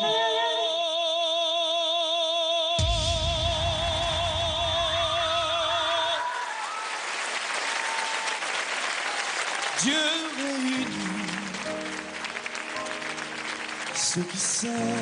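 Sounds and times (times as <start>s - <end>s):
man singing high note: 0.0s - 6.4s, 9.8s - 11.9s, 14.0s - 15.0s
backing music: 2.8s - 6.2s, 9.8s - 15.0s
audience applause and cheering: 2.8s - 15.0s.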